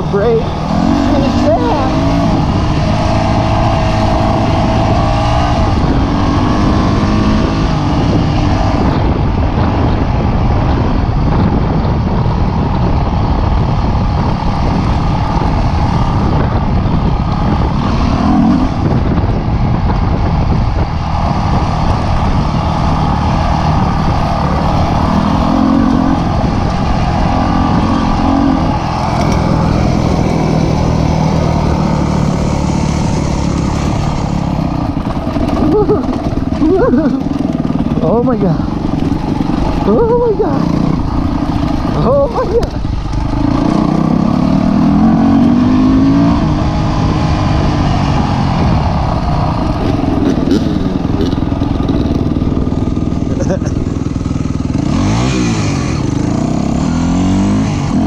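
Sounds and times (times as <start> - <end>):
dirt bike engine revving: 0.0 - 10.0, 10.6 - 58.0
rushing noise: 0.0 - 58.0.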